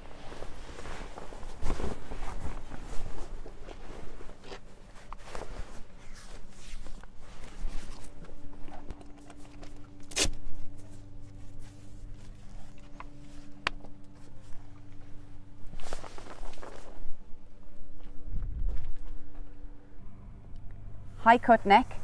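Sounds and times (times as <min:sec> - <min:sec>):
nylon fabric rustling: 0:00.0 - 0:08.9, 0:10.6 - 0:17.6.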